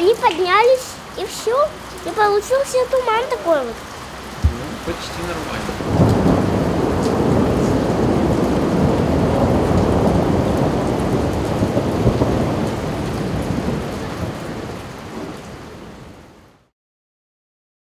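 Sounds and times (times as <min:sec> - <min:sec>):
heavy rain pouring: 0:00.0 - 0:16.7.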